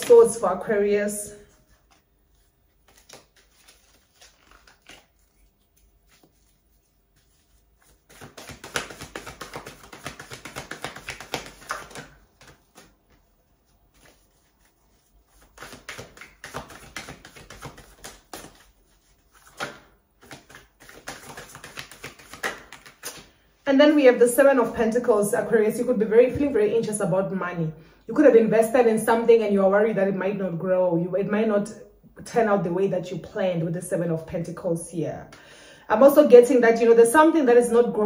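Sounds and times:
cards being shuffled: 0:01.6 - 0:23.4.

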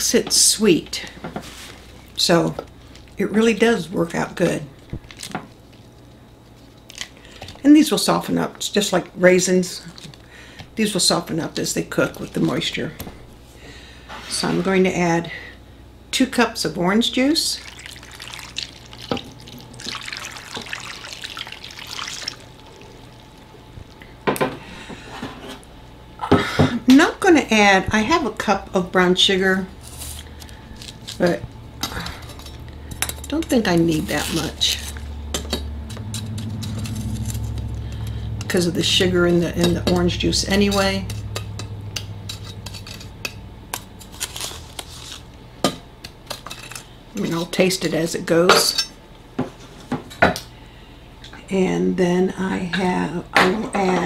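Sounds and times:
juice pouring and splashing: 0:17.6 - 0:24.1.

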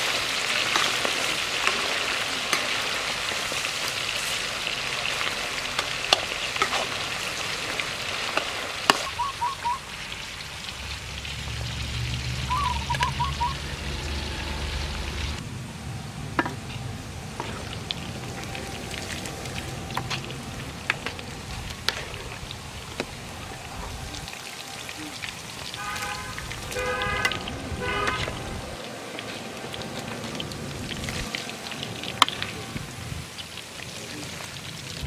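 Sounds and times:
food deep-frying in oil: 0:00.0 - 0:35.0
brief pitched call: 0:12.5 - 0:13.7
oil popping: 0:16.4 - 0:35.0.

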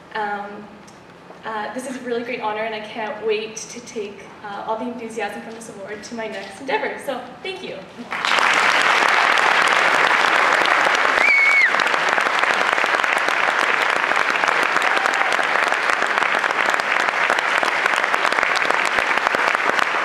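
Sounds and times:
audience applauding: 0:08.0 - 0:20.0
short high whistle: 0:11.2 - 0:11.8.

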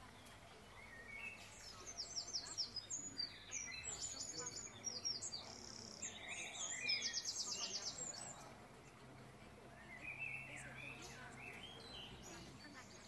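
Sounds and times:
lower bird chirps: 0:00.0 - 0:09.0, 0:09.6 - 0:13.0
small birds trilling: 0:00.0 - 0:13.0.

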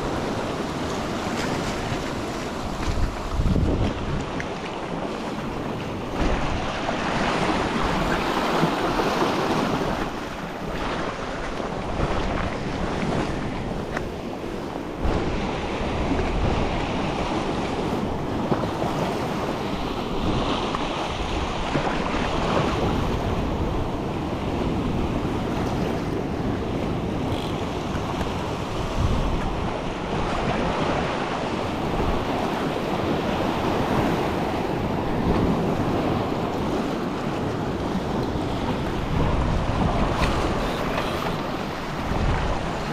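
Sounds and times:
ocean surf washing against rocks: 0:00.0 - 0:42.9
wind buffeting microphone: 0:00.0 - 0:42.9.

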